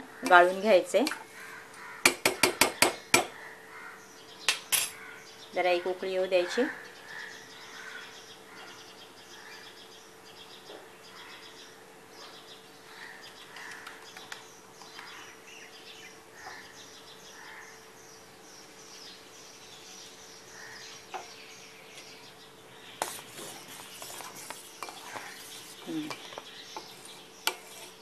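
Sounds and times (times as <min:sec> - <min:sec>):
small birds chirping: 0:00.0 - 0:28.0
stirring curdled milk: 0:23.0 - 0:28.0
spoon clanking against steel pot: 0:26.0 - 0:26.4.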